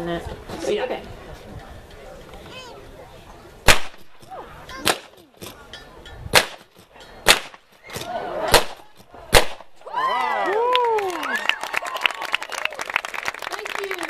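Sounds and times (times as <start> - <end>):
rifle shots: 3.6 - 4.2, 4.8 - 5.2, 6.3 - 7.6, 8.4 - 9.8.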